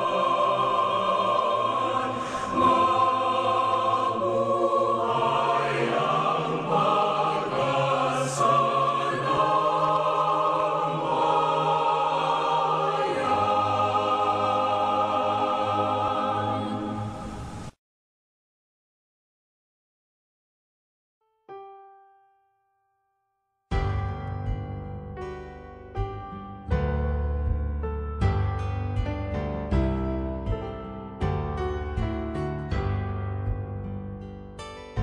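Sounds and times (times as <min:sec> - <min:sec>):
slow choral music: 0:00.0 - 0:17.8, 0:26.7 - 0:35.0.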